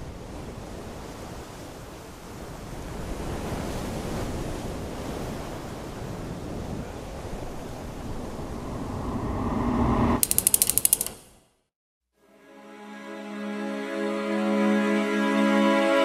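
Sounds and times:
sea surf: 0.0s - 9.9s
wind noise: 2.4s - 10.9s
faint rising tone: 7.8s - 11.2s
rapid sharp clicks: 10.2s - 11.4s.

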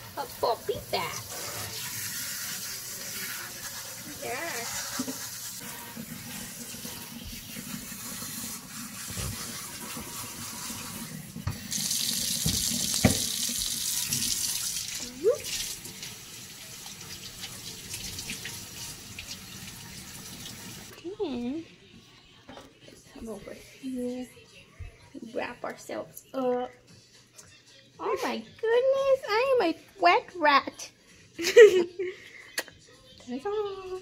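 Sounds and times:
water spraying and splashing: 0.0s - 20.9s
knocks against sink: 12.4s - 13.3s.

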